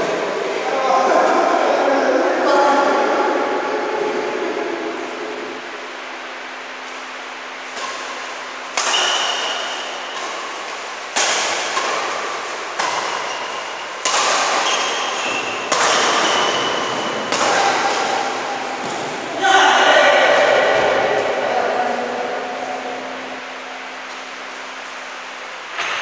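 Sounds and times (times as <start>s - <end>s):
racket hitting shuttlecock echoing: 5.0s - 26.0s
shoe squeaks: 14.6s - 17.2s.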